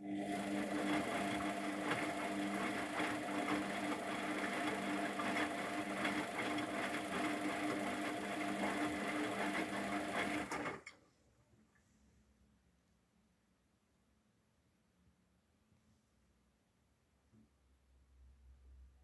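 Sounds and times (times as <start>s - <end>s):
wet laundry churning: 0.0s - 10.8s
washing machine motor whirring: 0.0s - 10.9s.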